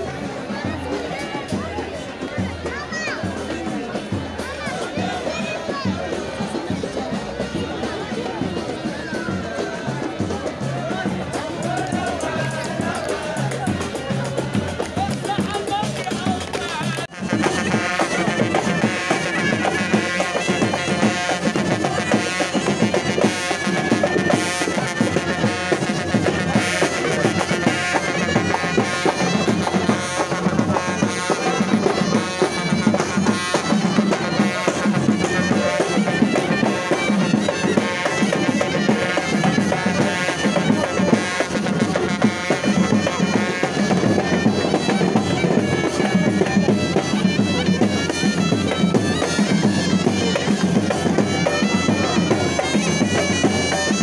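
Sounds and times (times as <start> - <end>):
steady drumbeat: 0.0 - 54.0
reed pipes playing: 15.2 - 54.0.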